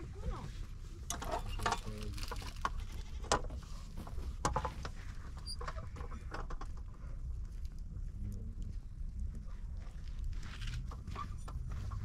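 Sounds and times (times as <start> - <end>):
sticks and embers clicking: 1.1 - 3.6
steady low rumble: 2.0 - 12.0.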